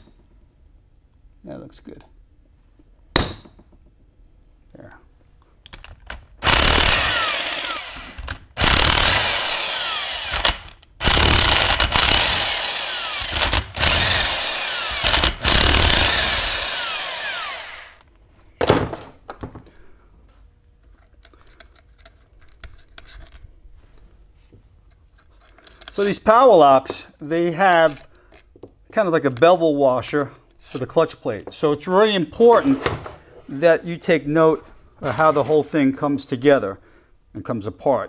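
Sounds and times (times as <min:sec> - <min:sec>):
impact wrench hammering: 0:03.1 - 0:03.8, 0:06.4 - 0:18.0.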